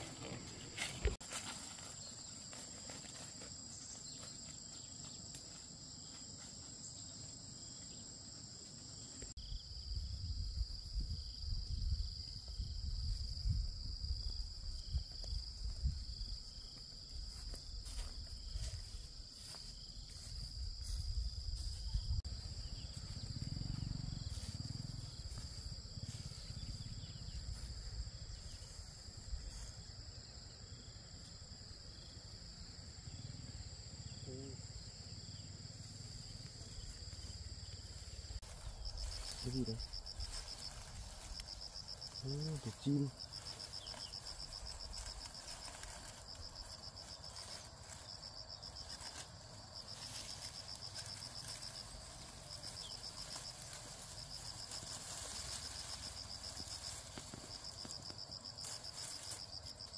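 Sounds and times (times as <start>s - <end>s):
insect chorus: 0.0s - 59.9s.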